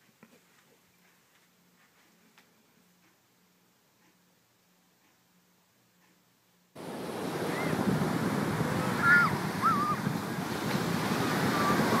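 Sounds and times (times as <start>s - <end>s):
high rising and falling calls: 6.8s - 7.9s, 8.5s - 10.1s
ocean surf breaking on beach: 6.8s - 12.0s
wind on microphone: 6.8s - 12.0s.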